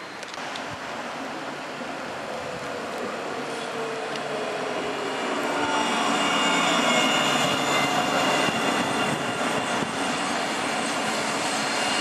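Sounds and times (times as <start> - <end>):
tram electric whine: 0.0 - 12.0.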